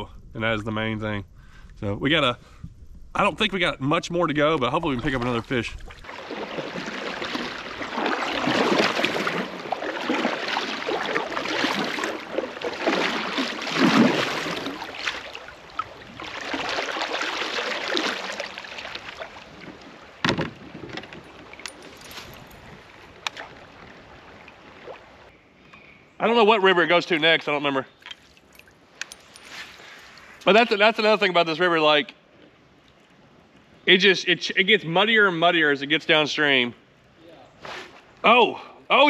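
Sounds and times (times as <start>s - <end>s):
water rushing past hull: 4.6s - 25.3s
paddle strokes splashing: 4.8s - 25.3s.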